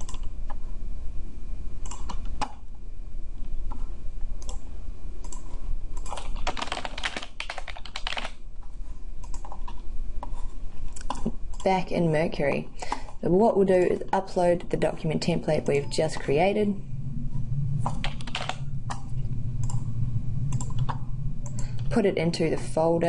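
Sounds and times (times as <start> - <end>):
computer keyboard typing: 0.0 - 0.3, 1.8 - 2.5, 5.2 - 8.4, 9.2 - 9.8, 10.9 - 11.7, 17.8 - 18.6
low steady hum: 0.0 - 23.0.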